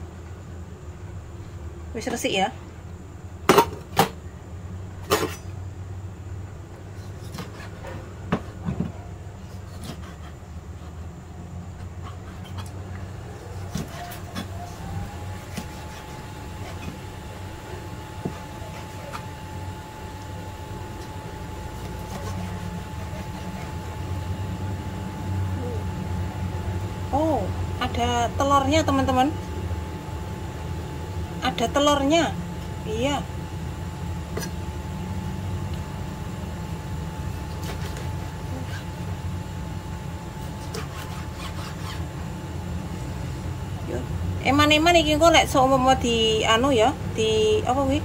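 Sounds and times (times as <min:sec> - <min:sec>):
low machine hum: 0:00.0 - 0:48.0
knife cutting on plastic board: 0:15.4 - 0:17.1, 0:21.8 - 0:24.0, 0:40.4 - 0:42.1.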